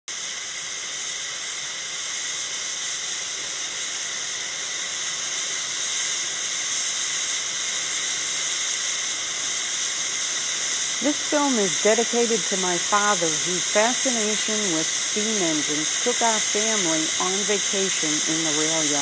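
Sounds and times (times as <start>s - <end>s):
steam locomotive hissing steam: 0.1s - 19.0s.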